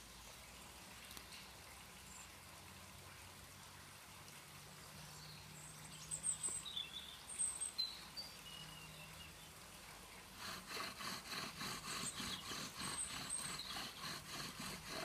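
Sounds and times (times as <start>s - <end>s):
bow drill rasping on wood: 10.4s - 15.0s.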